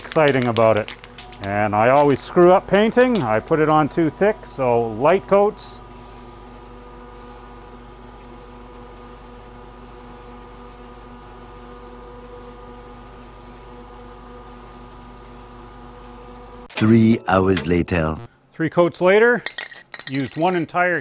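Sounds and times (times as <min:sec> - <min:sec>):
electrical hum: 0:00.0 - 0:18.6
spray can hissing: 0:06.0 - 0:12.6, 0:13.2 - 0:13.7, 0:14.5 - 0:16.5.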